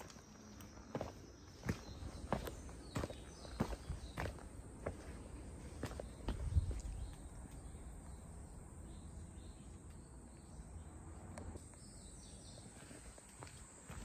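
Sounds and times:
soft footsteps on path: 0.0s - 7.8s, 12.5s - 14.0s
distant bird chirps: 0.0s - 11.0s.

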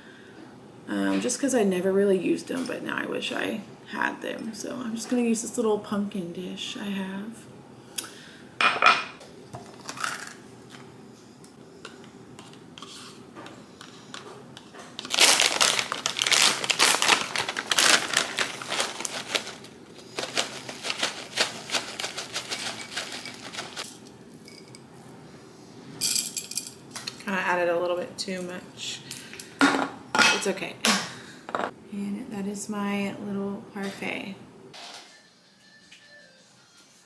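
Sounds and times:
plastic bag crinkling: 15.0s - 23.9s
chocolate chips rattling from a jar: 15.0s - 24.7s
spoon scraping: 21.4s - 24.8s.

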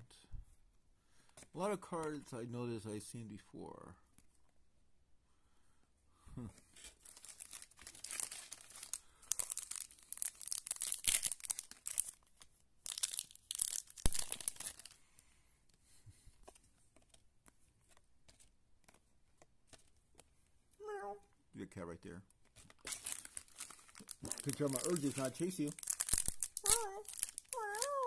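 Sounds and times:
wrapper tearing and crinkling: 6.8s - 15.0s, 22.6s - 28.0s
faint clicks of cards handled: 15.6s - 20.6s.

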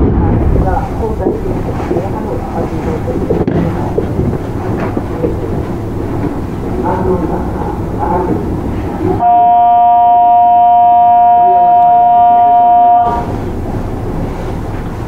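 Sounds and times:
train rumbling on rails: 0.0s - 15.0s
train horn blast: 8.9s - 13.6s.

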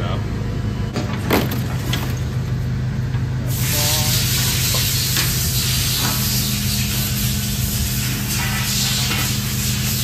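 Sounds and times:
hydraulic unit humming: 0.0s - 10.0s
loud steady hiss: 3.4s - 10.0s.

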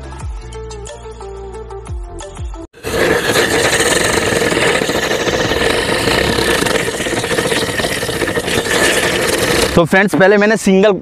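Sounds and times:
firecracker hissing and whining: 2.8s - 9.8s.

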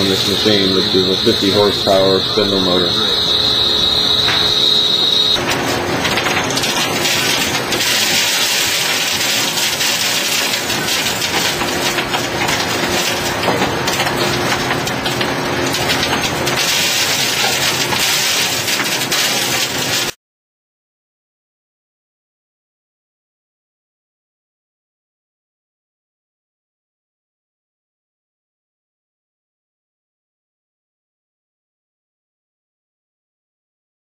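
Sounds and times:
faint machine hum: 0.0s - 20.1s.

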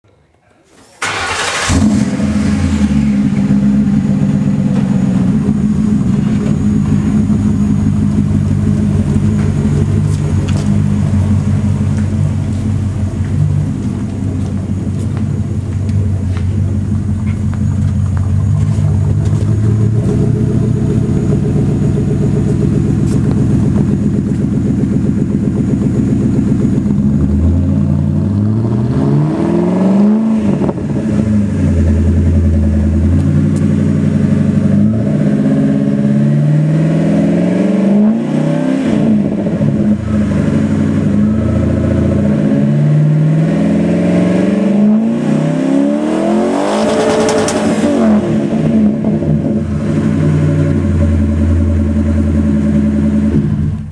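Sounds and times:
car engine idling and revving: 1.0s - 53.9s.

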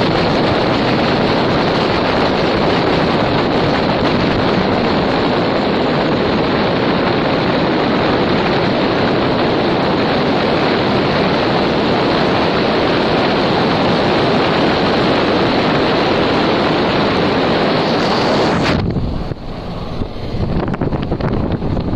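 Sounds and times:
road and wind noise: 0.0s - 21.9s.

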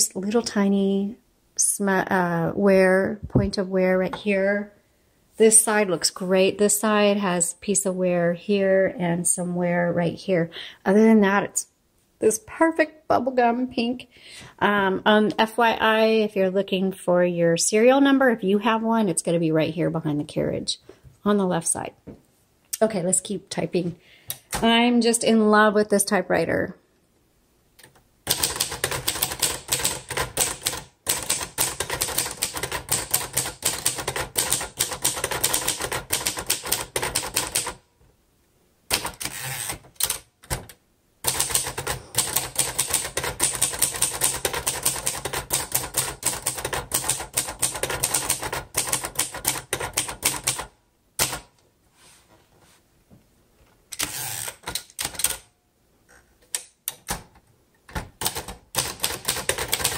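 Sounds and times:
typewriter keystroke clacks: 28.3s - 37.8s, 41.3s - 51.5s, 54.6s - 55.5s, 57.9s - 59.9s.

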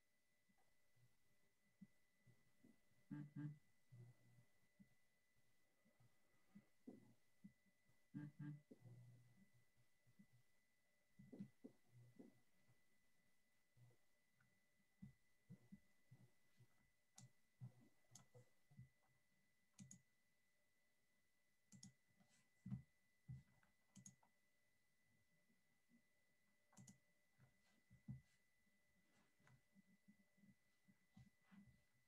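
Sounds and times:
faint irregular clicks: 14.4s - 20.2s, 21.7s - 24.4s, 26.7s - 28.3s.

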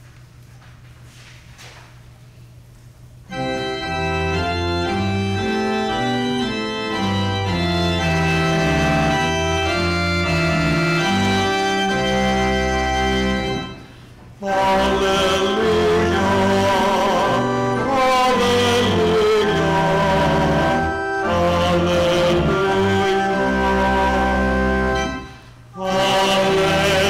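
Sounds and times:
church organ playing chords: 3.3s - 27.0s
man singing: 14.4s - 25.2s, 25.8s - 27.0s.

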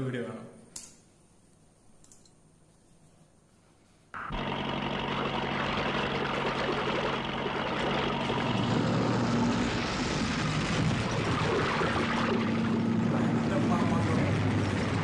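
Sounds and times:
tractor engine running hard: 4.2s - 15.0s.

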